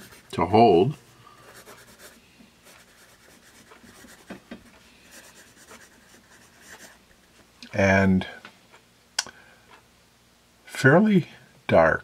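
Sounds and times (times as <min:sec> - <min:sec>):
pencil scratching on paper: 0:00.0 - 0:00.4, 0:01.4 - 0:04.3, 0:05.1 - 0:07.0.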